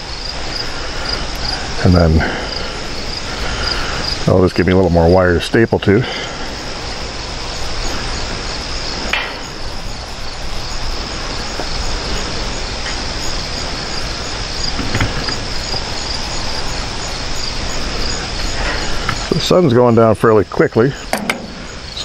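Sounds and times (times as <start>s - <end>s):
crickets chirping: 0.0s - 22.0s
wire mesh clicking: 21.1s - 22.0s.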